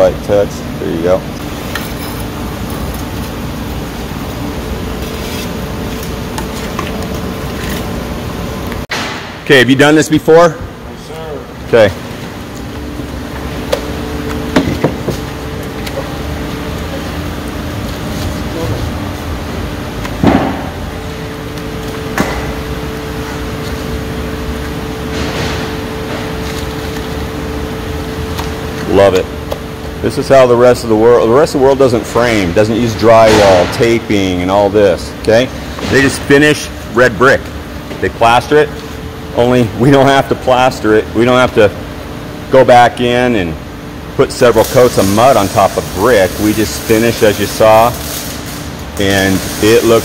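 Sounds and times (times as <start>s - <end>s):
machine running hum: 0.0s - 50.0s
sharp knock: 8.9s - 9.4s.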